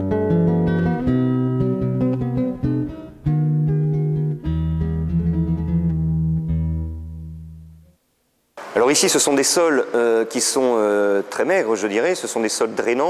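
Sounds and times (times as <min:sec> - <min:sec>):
plucked acoustic guitar melody: 0:00.0 - 0:08.0.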